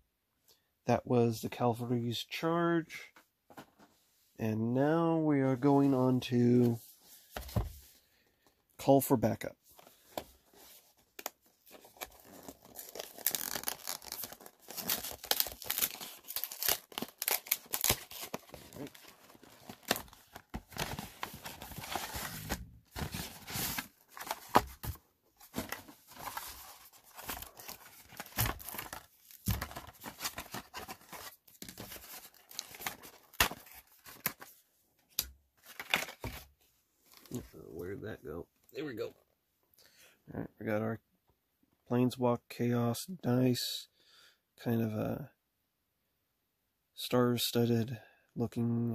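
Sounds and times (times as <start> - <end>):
plastic wrap tearing and crinkling: 12.1 - 22.5.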